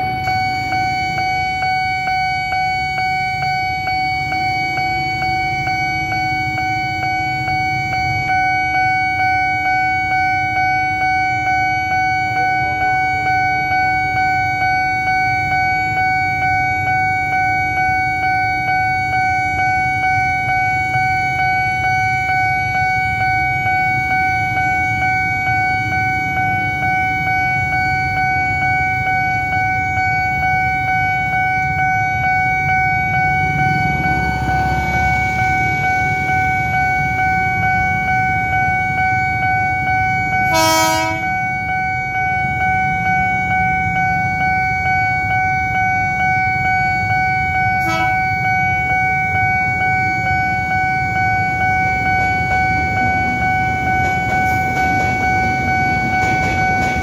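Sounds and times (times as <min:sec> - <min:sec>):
motorcycle engines idling: 0:00.0 - 0:10.2, 0:12.2 - 0:57.0
level crossing warning alarm: 0:00.0 - 0:57.0
train horn: 0:40.4 - 0:41.6, 0:47.7 - 0:48.5.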